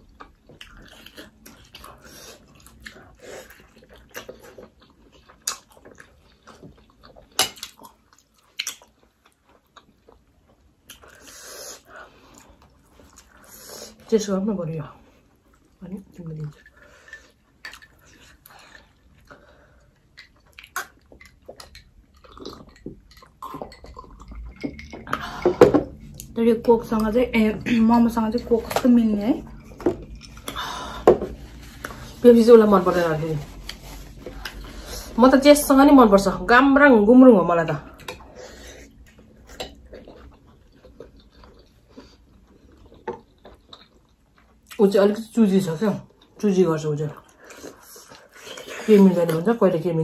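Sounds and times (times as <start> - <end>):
chewing: 0.1 - 13.5, 15.1 - 25.2, 37.9 - 44.8.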